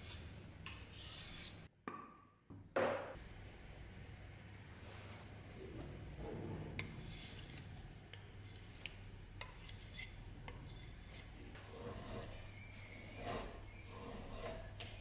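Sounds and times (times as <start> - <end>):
sharpening stone scraping blade: 1.0 - 1.6, 7.0 - 7.6, 8.4 - 11.3.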